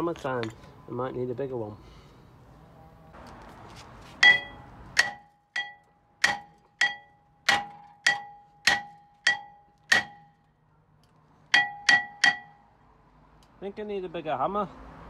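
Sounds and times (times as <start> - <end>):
hammer striking metal disc: 4.2 - 10.4, 11.5 - 12.6
metal disc ringing: 4.2 - 10.4, 11.5 - 12.6.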